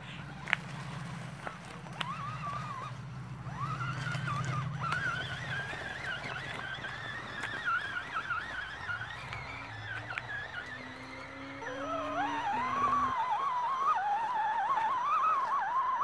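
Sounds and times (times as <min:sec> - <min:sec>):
electric motor whining: 0:00.0 - 0:16.0
faint ticks: 0:03.8 - 0:13.0.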